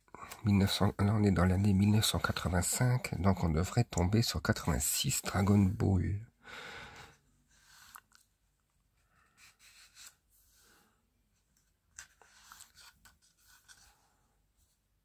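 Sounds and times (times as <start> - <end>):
book pages turning: 11.5 - 14.1.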